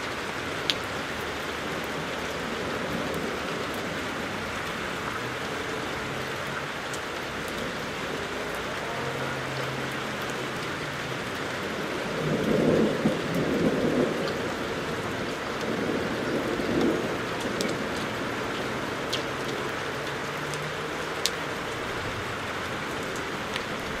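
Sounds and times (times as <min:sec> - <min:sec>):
steady rain falling: 0:00.0 - 0:24.0
sharp drip ticks: 0:06.4 - 0:07.9, 0:15.3 - 0:21.8
thunder rumbling: 0:07.6 - 0:20.2.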